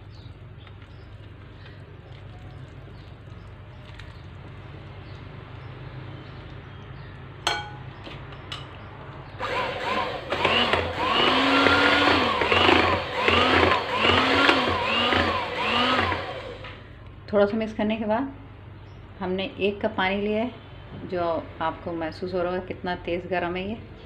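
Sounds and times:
electric hand mixer beating batter: 0:09.4 - 0:16.8.

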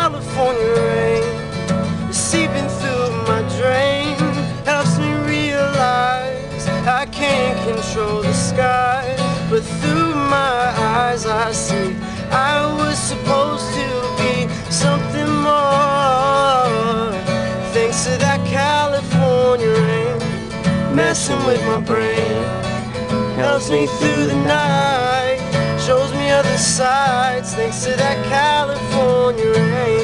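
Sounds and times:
acoustic guitar: 0:00.0 - 0:30.0
man singing wordless melody: 0:00.0 - 0:30.0.

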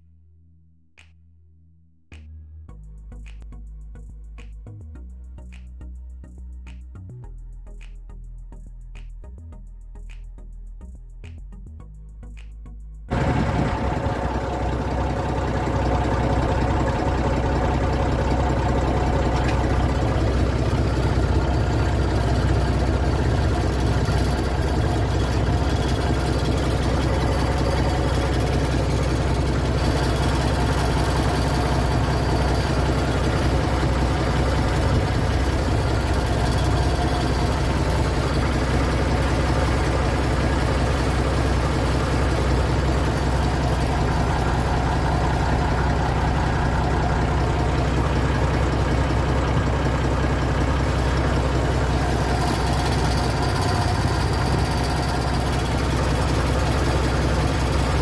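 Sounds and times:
tractor engine idling: 0:13.1 - 0:58.0.

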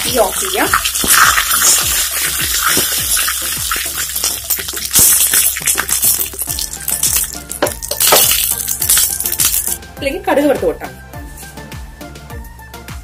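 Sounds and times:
spices sizzling in hot oil: 0:00.0 - 0:09.8.

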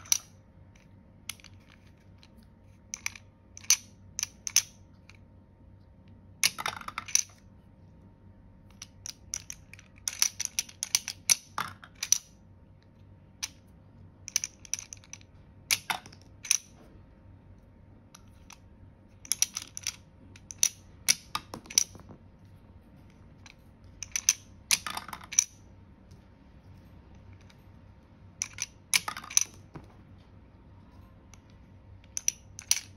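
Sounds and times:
plastic toy clicks and clatters: 0:02.9 - 0:05.2, 0:08.7 - 0:12.3, 0:14.3 - 0:16.7, 0:19.2 - 0:22.0, 0:23.4 - 0:25.6, 0:28.4 - 0:29.7, 0:32.0 - 0:32.9
toy pieces knocking on plastic: 0:06.4 - 0:07.4, 0:08.7 - 0:12.3, 0:19.2 - 0:22.2, 0:23.4 - 0:25.6, 0:28.4 - 0:30.0.

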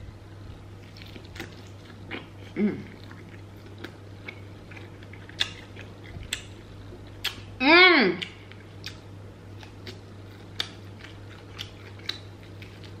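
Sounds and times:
steady low hum: 0:00.0 - 0:13.0
chewing crunchy food: 0:00.8 - 0:07.5, 0:08.2 - 0:13.0
person humming: 0:02.5 - 0:02.9.

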